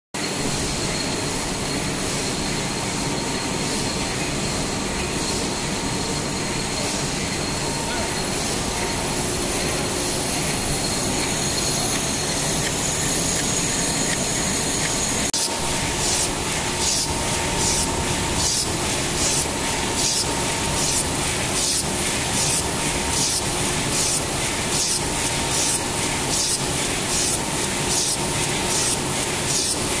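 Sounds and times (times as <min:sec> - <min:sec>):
regular hissing pulse: 0:05.2 - 0:29.9
machine mechanical clatter: 0:11.9 - 0:30.0.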